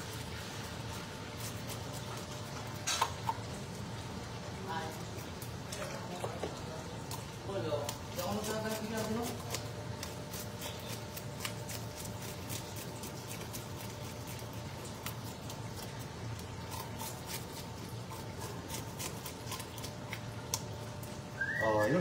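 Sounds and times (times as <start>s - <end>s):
knife scraping fish scales: 0.0s - 3.4s, 7.9s - 20.3s.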